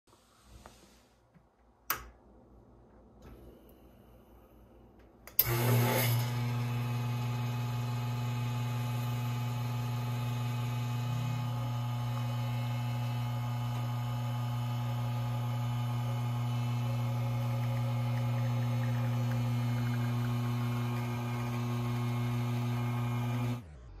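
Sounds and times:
espresso pump humming: 5.4s - 23.6s.

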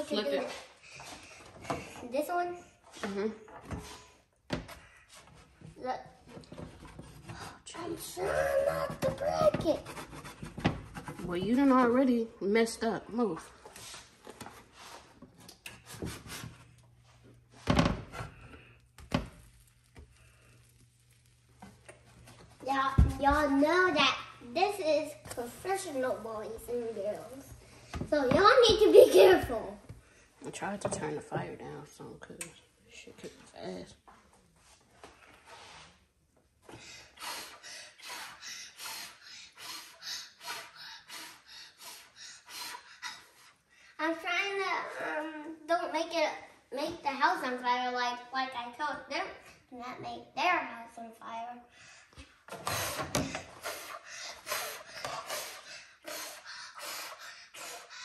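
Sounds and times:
plastic spatula scraping griddle: 5.1s - 12.0s
person breathing fast and hard: 51.7s - 58.0s.

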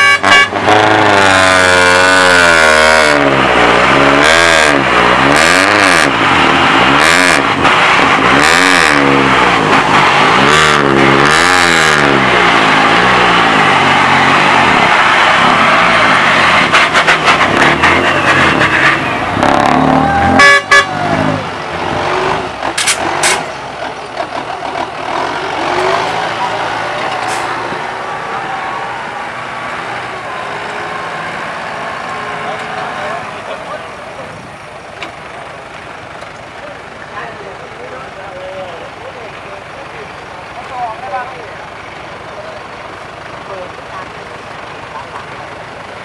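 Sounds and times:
engines straining under load: 0.0s - 46.0s.

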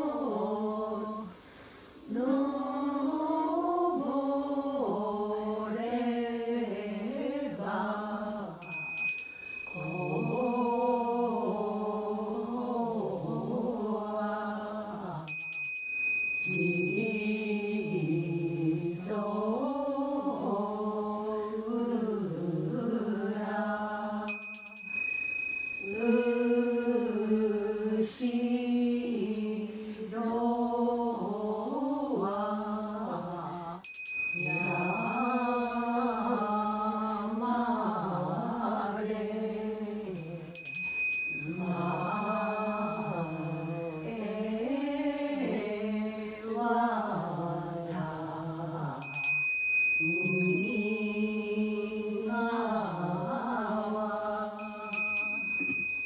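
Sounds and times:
voices chanting a hymn: 0.0s - 8.7s, 9.6s - 15.4s, 16.4s - 24.4s, 25.6s - 40.6s, 41.3s - 49.2s, 50.0s - 55.0s
bell struck and ringing: 8.6s - 10.8s, 15.3s - 18.6s, 24.3s - 26.4s, 33.9s - 36.4s, 40.2s - 44.4s, 49.0s - 51.4s, 54.6s - 56.0s.

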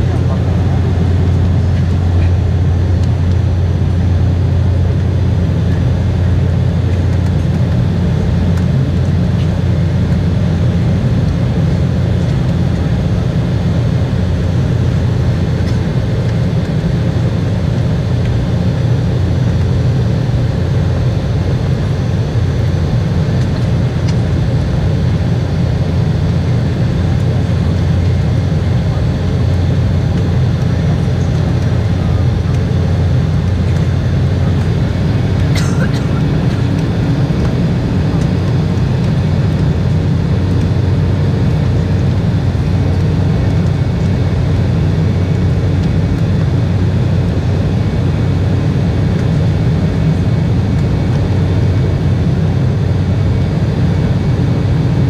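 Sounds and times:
airplane cabin drone: 0.0s - 55.0s.

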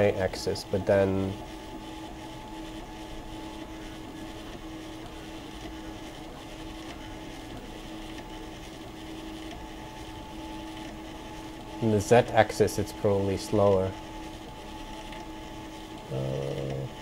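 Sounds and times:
printer mechanical hum with whine: 0.0s - 17.0s.

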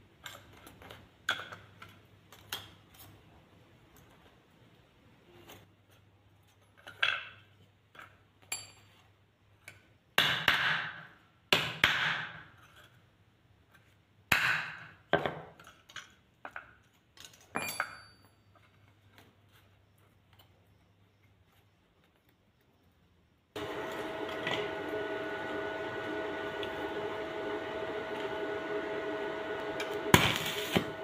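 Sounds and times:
hammer striking sheet metal: 29.8s - 31.0s.

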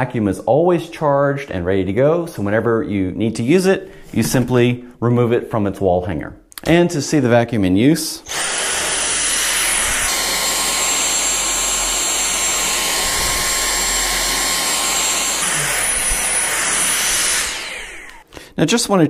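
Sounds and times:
vacuum cleaner whining: 8.3s - 18.3s.

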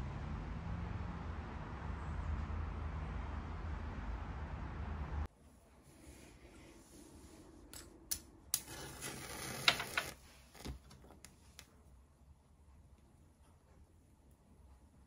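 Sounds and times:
match striking and flaring: 8.6s - 10.8s.

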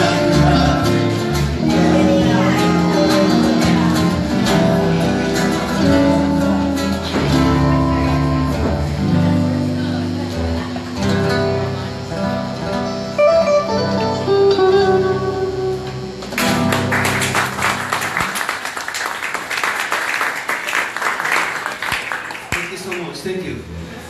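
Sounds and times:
acoustic guitar music: 0.0s - 18.4s
clapping and applause: 16.3s - 23.3s.

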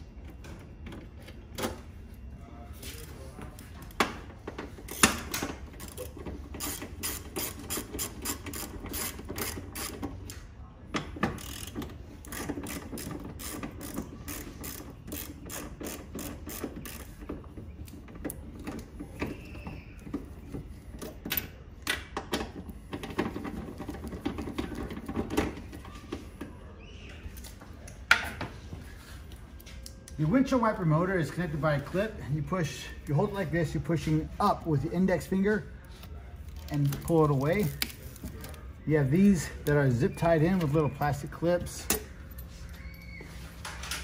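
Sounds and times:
hand ratchet clicking: 4.9s - 10.1s, 11.4s - 17.1s.

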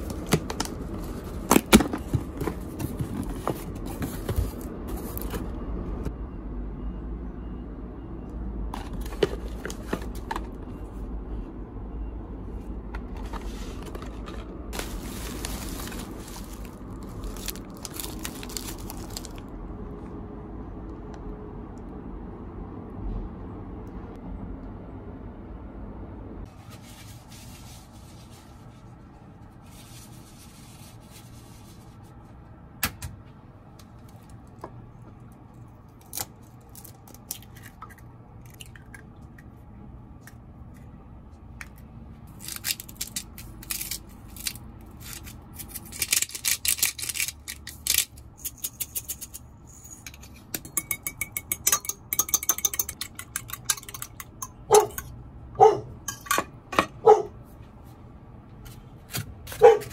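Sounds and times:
fork clinking against jug: 50.0s - 55.1s
dog barking: 54.7s - 55.0s, 55.6s - 56.0s, 57.0s - 57.4s, 59.6s - 59.9s.

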